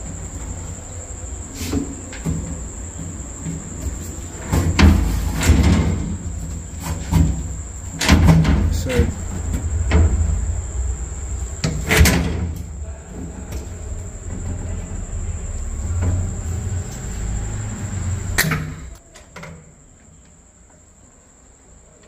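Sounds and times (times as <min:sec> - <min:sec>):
rumbling handling noise: 0:00.0 - 0:19.0
faint high whine: 0:00.0 - 0:20.5.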